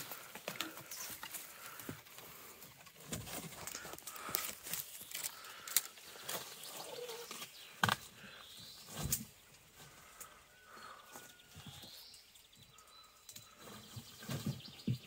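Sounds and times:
leaves rustling: 0:00.0 - 0:10.8
faint birdsong: 0:00.0 - 0:15.0.

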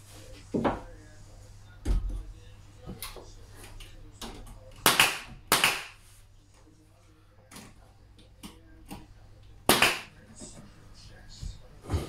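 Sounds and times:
pin nailer shots: 0:04.8 - 0:06.0, 0:09.7 - 0:10.1.

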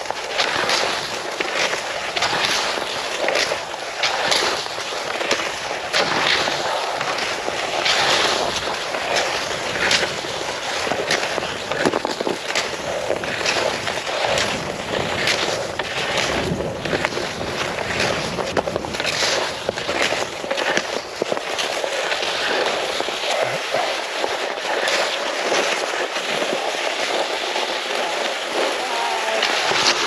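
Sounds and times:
crunch of ski poles planting: 0:00.0 - 0:30.0
skis scraping over snow: 0:00.0 - 0:30.0.

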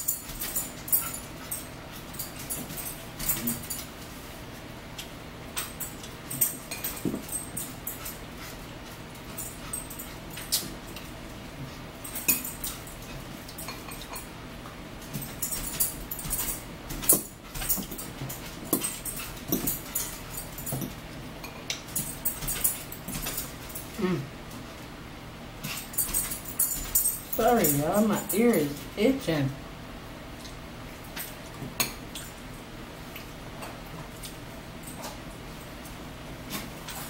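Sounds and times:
forks clinking on ceramic: 0:12.1 - 0:14.3.

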